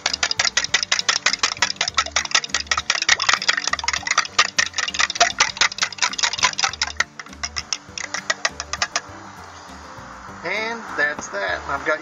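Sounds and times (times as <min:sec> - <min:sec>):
fork clicking against plastic cup: 0:00.0 - 0:09.1.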